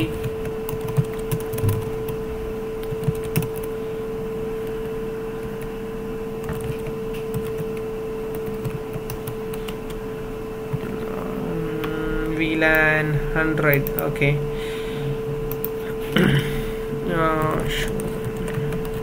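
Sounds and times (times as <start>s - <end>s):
keyboard keys clicking: 0.0s - 2.2s, 2.8s - 3.7s, 6.4s - 10.0s, 17.4s - 19.0s
steady hum: 0.0s - 19.0s.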